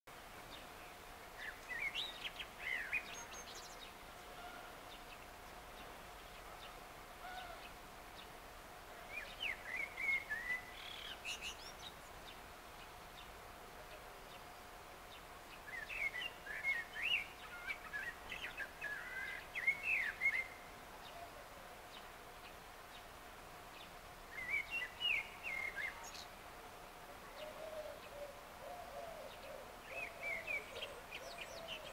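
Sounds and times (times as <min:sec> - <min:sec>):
blackbird singing: 0:09.1 - 0:11.9, 0:15.7 - 0:21.2, 0:24.3 - 0:26.3, 0:27.4 - 0:31.9.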